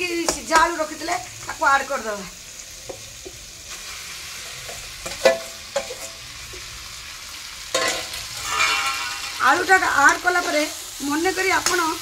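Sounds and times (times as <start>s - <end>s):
spices sizzling in a pan: 0.0s - 12.0s
metal ladle scraping steel bowl: 7.8s - 9.8s.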